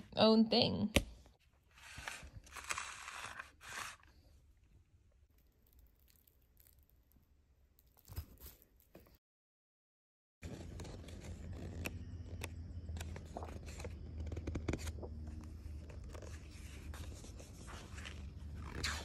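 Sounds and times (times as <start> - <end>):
notebook rustling: 1.6 - 4.3, 10.4 - 19.0.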